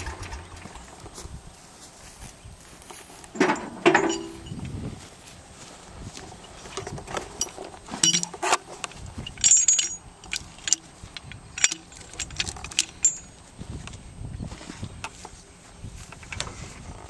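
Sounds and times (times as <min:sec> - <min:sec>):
steel chain and hook rattling: 0:03.4 - 0:04.6, 0:07.3 - 0:08.4, 0:09.1 - 0:13.4.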